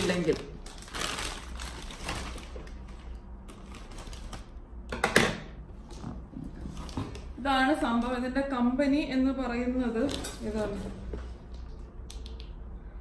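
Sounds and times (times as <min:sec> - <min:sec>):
plastic mailer rustling: 0:00.0 - 0:04.5.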